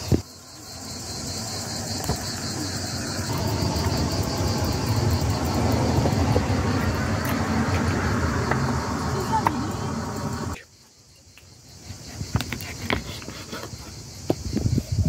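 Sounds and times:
insects chirring: 0.0 - 15.0
steady low rumble: 0.4 - 10.6.

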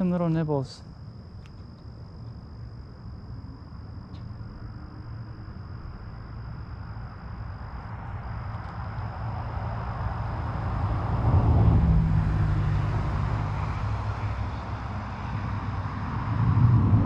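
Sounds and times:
road traffic rumble: 4.2 - 17.0
car approaching: 8.8 - 17.0.

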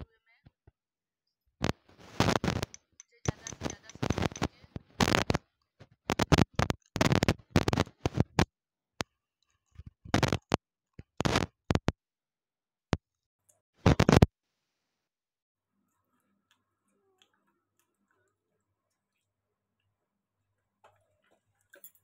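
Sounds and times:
crunching chalk-like sticks: 1.6 - 8.5.

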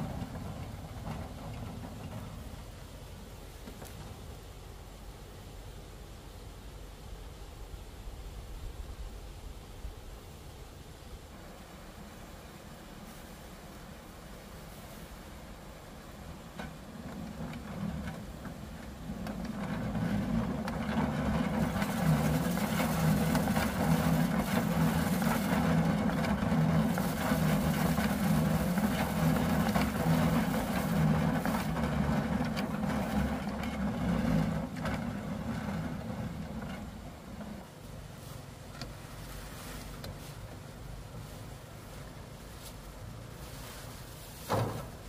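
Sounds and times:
rice stalks rattling and swishing: 12.9 - 45.0
thresher drum whirring: 16.9 - 37.6.

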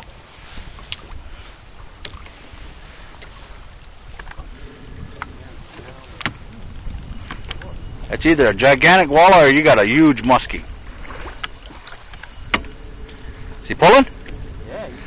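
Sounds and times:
water lapping against boat hull: 0.0 - 15.0
wind rumble on microphone: 0.0 - 15.0.

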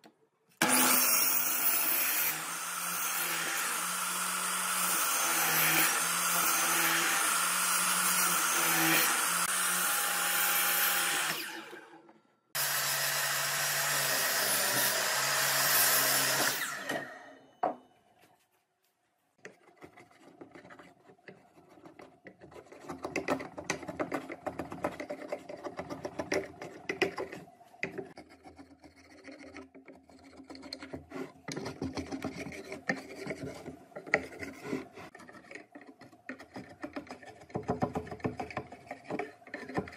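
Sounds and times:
miter saw cutting wood: 0.6 - 12.0, 12.6 - 17.4
chisel scraping wood: 19.4 - 39.9.

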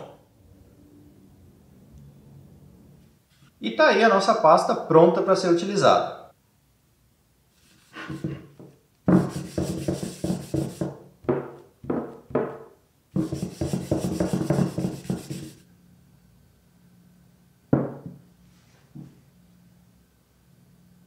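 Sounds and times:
paper towel rubbing on wood: 9.1 - 11.0, 13.2 - 15.6.

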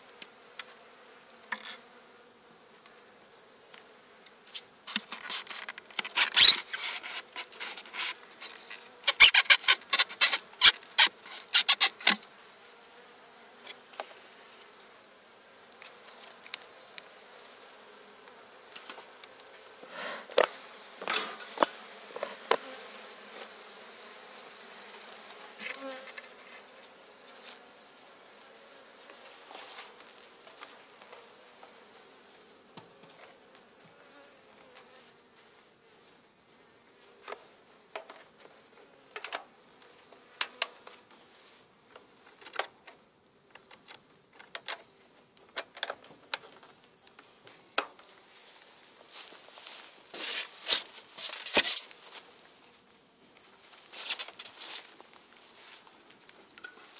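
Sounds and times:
bees buzzing: 5.8 - 37.8.

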